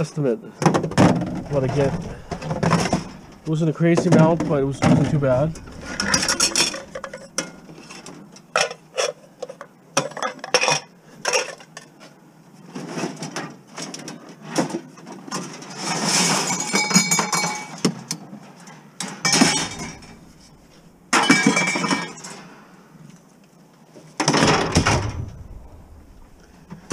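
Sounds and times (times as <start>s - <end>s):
rattling and rustling: 0.7s - 8.3s, 19.3s - 22.2s, 24.3s - 26.9s
bottles clinking: 0.8s - 8.0s, 19.3s - 20.6s, 21.2s - 22.3s.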